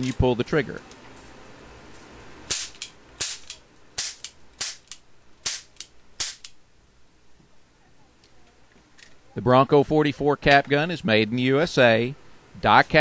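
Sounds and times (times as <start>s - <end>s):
cap pistol pops: 2.5s - 6.6s.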